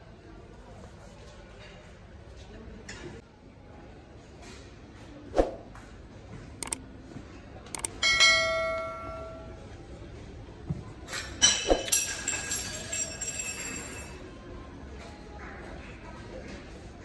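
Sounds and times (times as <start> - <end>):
mouse clicks: 6.6 - 6.8, 7.7 - 7.9.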